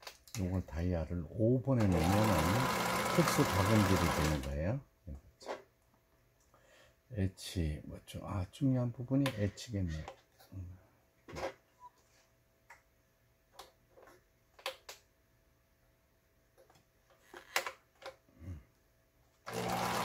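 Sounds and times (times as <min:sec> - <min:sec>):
sewing machine running: 0:01.8 - 0:04.5, 0:19.5 - 0:20.0.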